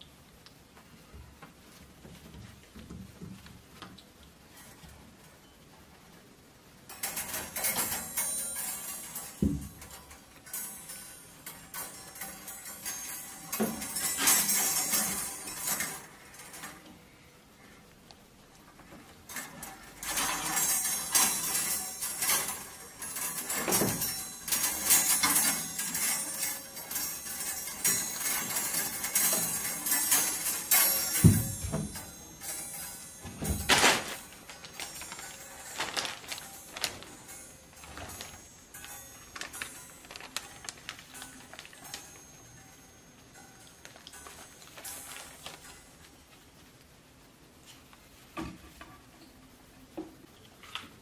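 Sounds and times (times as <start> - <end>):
metal hangers jangling on rail: 6.9 - 16.9, 19.3 - 45.9
clothes rustling: 18.8 - 42.7, 43.4 - 46.6.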